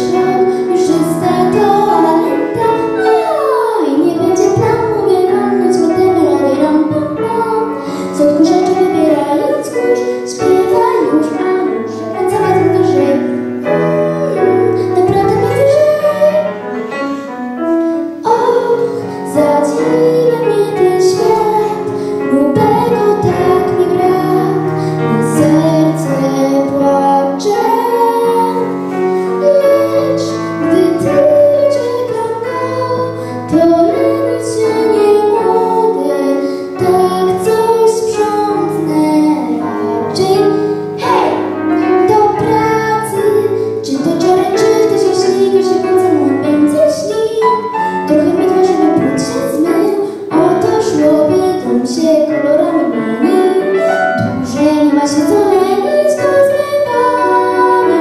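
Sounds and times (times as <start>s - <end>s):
girl singing into microphone: 0.0s - 58.0s
instrumental accompaniment: 0.0s - 58.0s.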